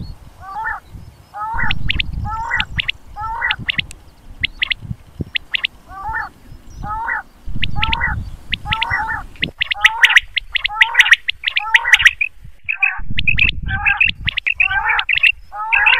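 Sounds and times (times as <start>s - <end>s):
quail calling: 0.0s - 15.9s
low rumbling: 1.5s - 9.6s.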